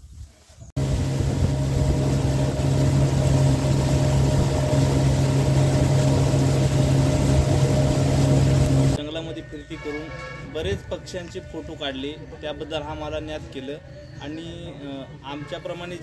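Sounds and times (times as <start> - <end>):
water hiss: 0.0 - 9.0
boat motor drone: 0.8 - 9.0.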